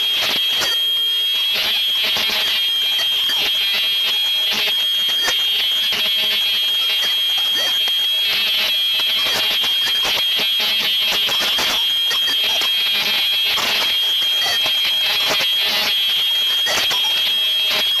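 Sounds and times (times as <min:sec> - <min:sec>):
embossing machine whining: 0:00.0 - 0:18.0.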